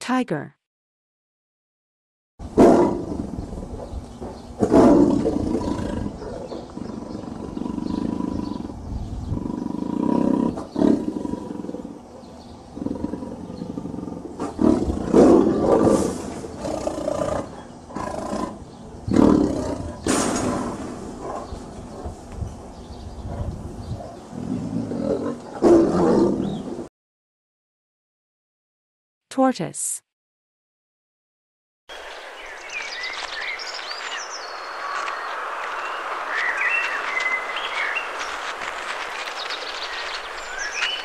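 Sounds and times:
tiger roaring: 2.4s - 22.1s, 23.4s - 26.9s
low rumbling tiger calls: 2.4s - 26.9s.

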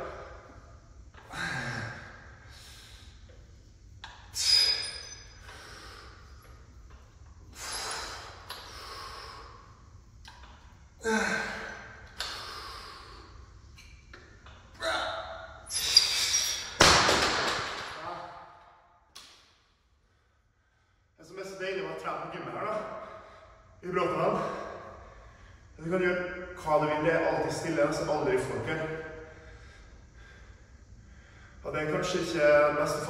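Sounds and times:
man exhaling and grunting: 1.2s - 2.7s, 11.0s - 13.0s.

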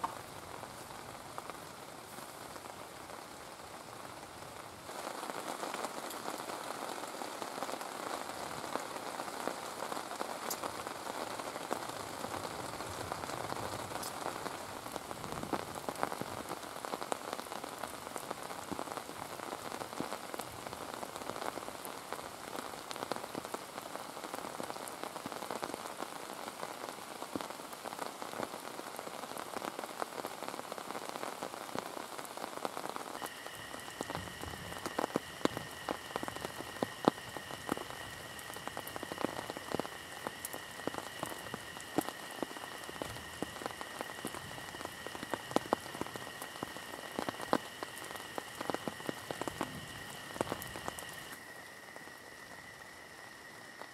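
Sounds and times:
sharp ticks and pops: 0.0s - 0.4s, 10.0s - 21.6s, 33.2s - 53.0s
heavy rain falling: 0.0s - 53.9s.

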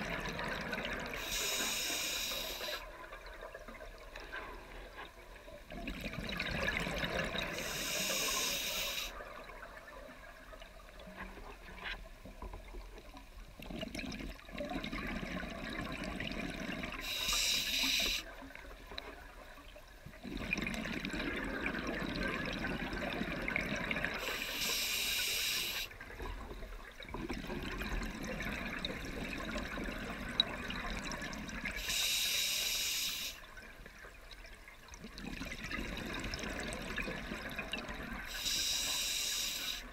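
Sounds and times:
diver inhaling through regulator: 1.2s - 2.8s, 7.4s - 9.2s, 17.0s - 18.3s, 24.2s - 25.9s, 31.8s - 33.4s, 38.3s - 39.9s
exhaled bubbles rushing: 5.7s - 7.5s, 20.2s - 24.2s, 35.0s - 38.3s.

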